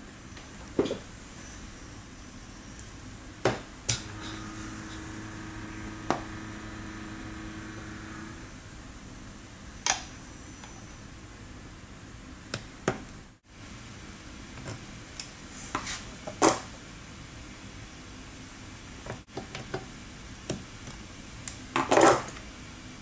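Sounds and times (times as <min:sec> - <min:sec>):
background hum: 0:00.0 - 0:13.4.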